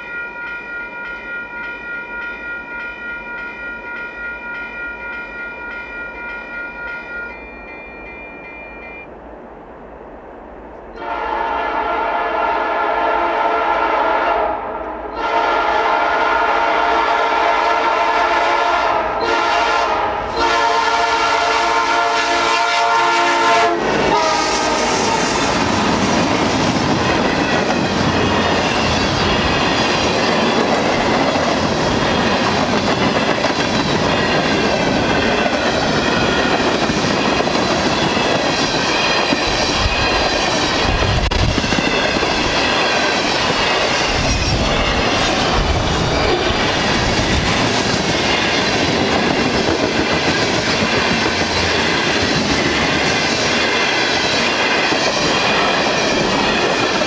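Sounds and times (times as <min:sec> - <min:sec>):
locomotive air horn blasts: 0:11.0 - 0:25.4
train wheels clacking on rails: 0:23.7 - 0:57.0.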